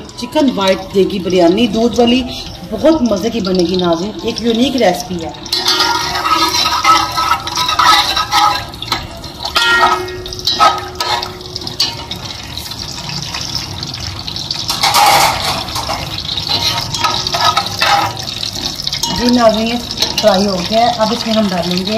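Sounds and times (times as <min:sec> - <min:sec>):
spices sizzling in hot ghee: 0:00.0 - 0:21.9
metal spoon scraping a pot: 0:05.4 - 0:13.6, 0:14.6 - 0:19.4.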